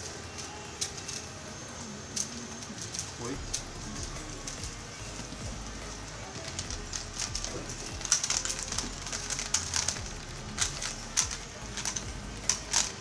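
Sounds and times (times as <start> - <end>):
puzzle cube plastic clicks: 6.2 - 13.0.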